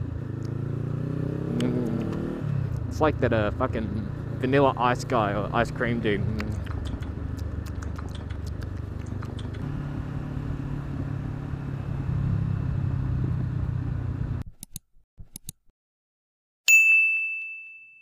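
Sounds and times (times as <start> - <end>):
motorcycle engine running: 0.0 - 14.4
faint clicks: 6.4 - 9.6.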